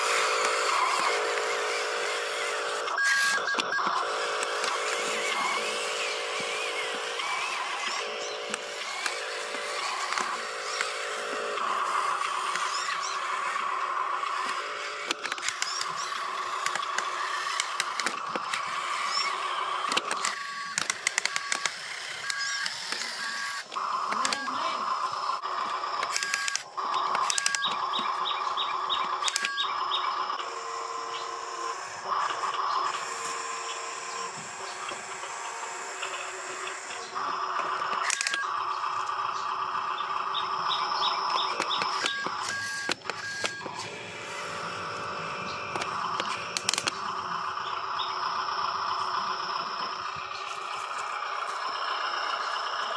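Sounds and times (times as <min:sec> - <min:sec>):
sharp clicks: 0:00.0 - 0:30.5, 0:32.0 - 0:52.9
toy truck motor whining: 0:00.0 - 0:52.9
clicks and crackles from wheels: 0:14.2 - 0:24.7, 0:25.6 - 0:30.5, 0:40.7 - 0:43.9, 0:45.4 - 0:47.3
bird chirps: 0:26.9 - 0:30.2, 0:38.3 - 0:43.7, 0:45.4 - 0:48.4.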